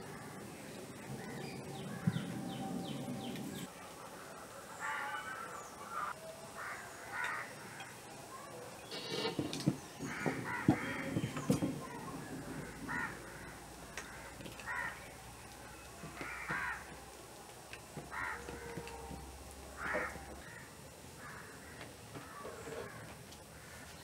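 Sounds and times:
crows cawing: 1.2 - 3.3, 4.2 - 8.0, 10.0 - 17.1, 18.0 - 24.0.

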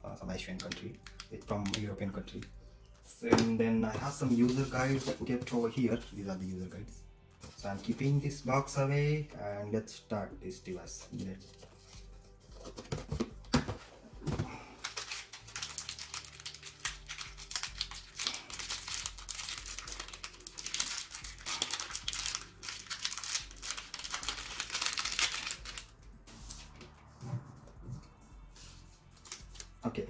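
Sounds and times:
plastic packaging crinkling: 14.5 - 25.9.

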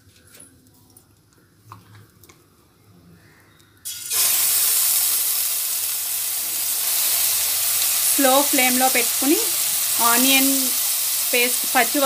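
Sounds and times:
onion paste sizzling in hot oil: 3.9 - 12.0.

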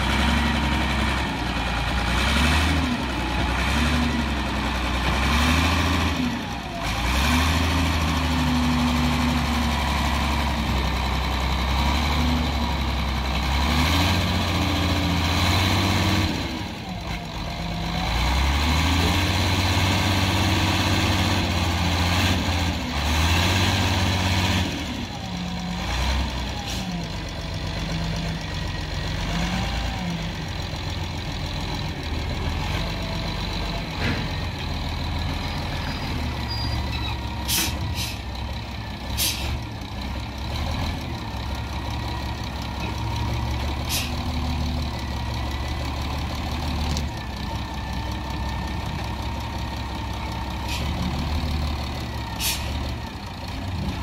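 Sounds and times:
wheel loader diesel engine: 0.0 - 54.0
short hisses: 37.5 - 38.3, 39.2 - 39.6, 52.4 - 52.8.

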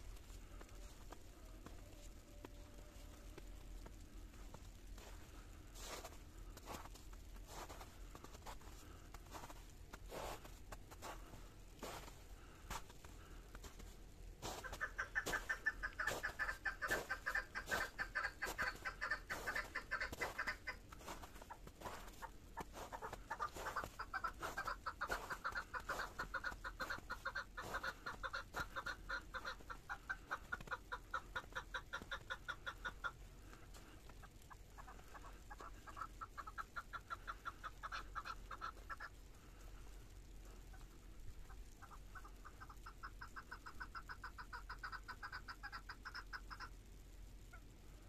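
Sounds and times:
bird rapid clucking calls: 14.4 - 39.6, 40.7 - 46.8.

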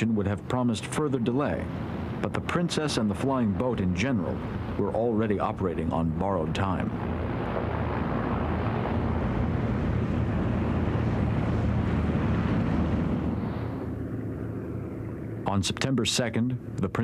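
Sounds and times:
turboprop engines droning: 0.0 - 17.0.

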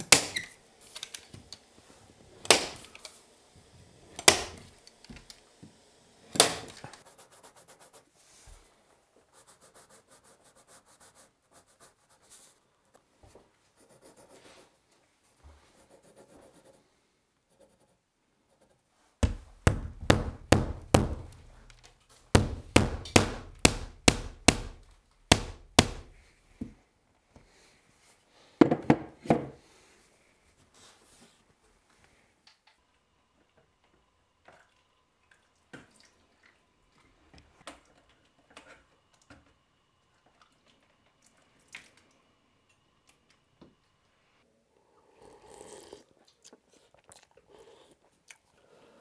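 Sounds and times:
sharp knocks: 19.2 - 21.7, 22.4 - 26.2
hammering on wood: 19.2 - 21.8, 22.4 - 26.2.

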